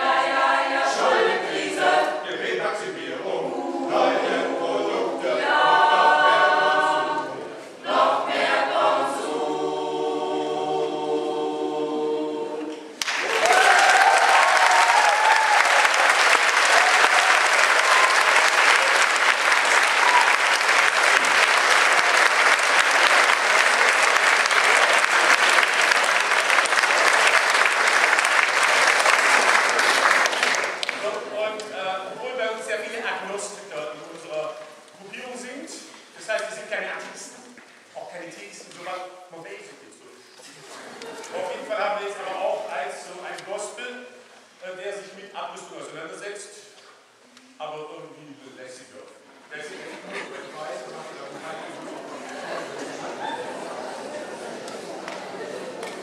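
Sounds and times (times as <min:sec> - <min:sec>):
mixed choir singing: 0:00.0 - 0:13.0
audience applause: 0:13.0 - 0:31.2, 0:51.8 - 0:56.0.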